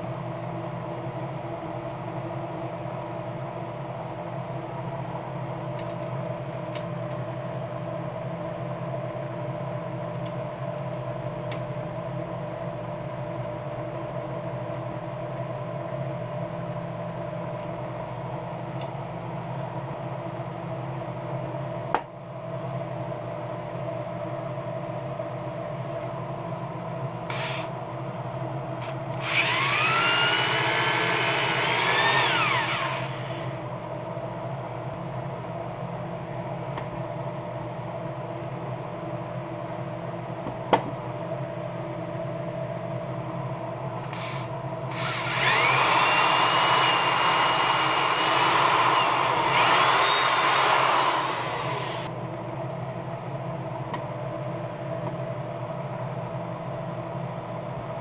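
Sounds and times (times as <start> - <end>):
cordless drill whine: 27.3 - 27.7, 29.2 - 33.6, 44.0 - 52.1.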